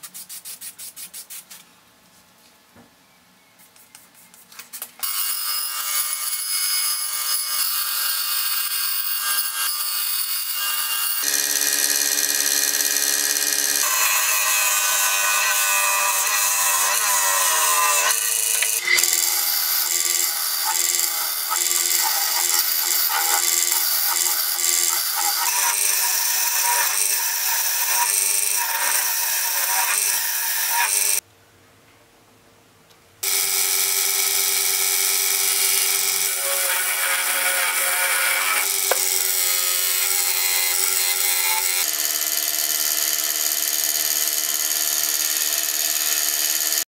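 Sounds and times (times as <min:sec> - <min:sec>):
bandsaw cutting wood: 0:05.0 - 0:31.2, 0:33.2 - 0:46.9
lathe gouge cutting spinning wood: 0:05.2 - 0:31.2, 0:33.3 - 0:46.8
steady motor hum: 0:11.2 - 0:14.8.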